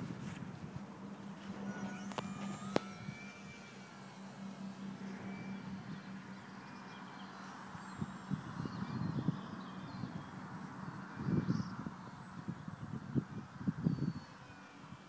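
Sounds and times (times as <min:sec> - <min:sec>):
wind noise: 0:00.0 - 0:03.5, 0:07.7 - 0:15.0
hum: 0:00.0 - 0:15.0
model plane motor whine: 0:00.0 - 0:15.0.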